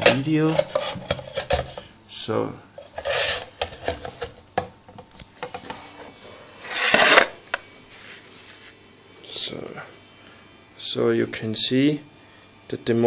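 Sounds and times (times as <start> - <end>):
fuselage scraping: 2.8 - 4.2, 6.1 - 7.4.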